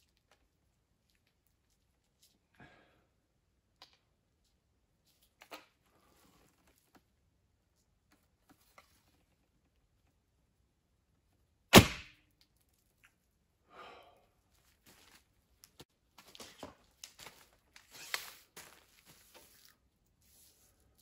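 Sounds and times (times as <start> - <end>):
arrow thunking into target: 11.7 - 12.2
arrows rustling and clicking: 16.4 - 19.7.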